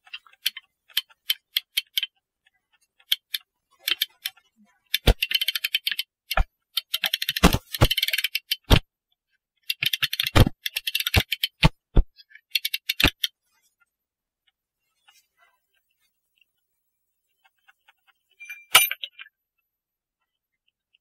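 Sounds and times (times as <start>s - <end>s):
ratchet clicking rapidly: 3.0s - 8.7s.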